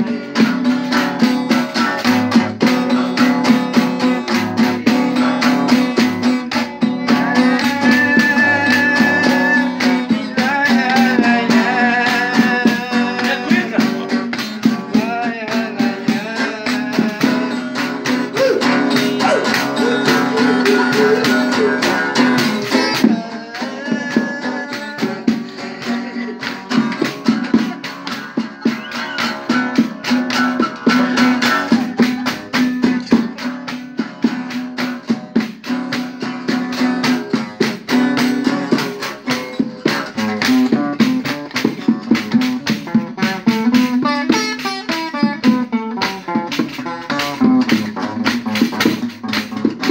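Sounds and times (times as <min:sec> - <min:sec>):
acoustic guitar strumming: 0:00.0 - 0:49.9
squeaky friction drum: 0:05.0 - 0:10.2, 0:17.7 - 0:23.2, 0:25.8 - 0:33.4.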